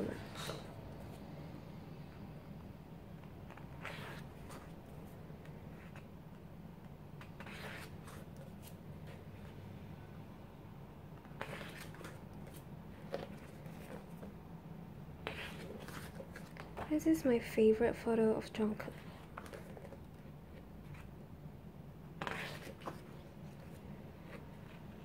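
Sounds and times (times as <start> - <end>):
book pages turning: 3.2 - 6.1, 7.2 - 9.6, 11.2 - 14.3, 15.2 - 16.9, 19.0 - 21.2, 22.2 - 25.0.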